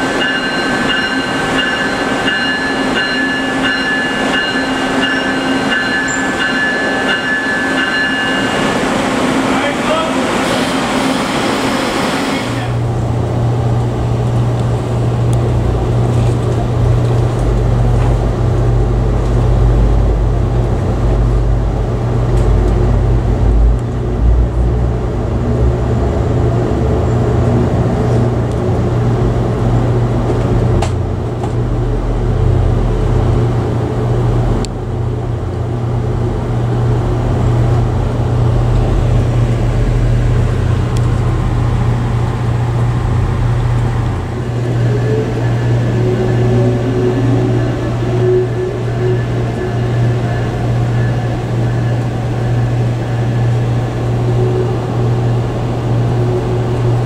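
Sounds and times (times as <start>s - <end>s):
train car hum: 0.0s - 57.0s
train rumbling on rails: 0.0s - 57.0s
station platform voices: 9.4s - 12.9s.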